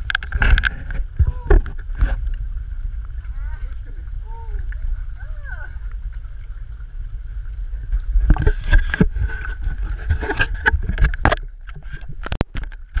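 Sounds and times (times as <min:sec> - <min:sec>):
low rumble of water and wind: 0:00.0 - 0:13.0
sea water sloshing and splashing: 0:00.0 - 0:13.0.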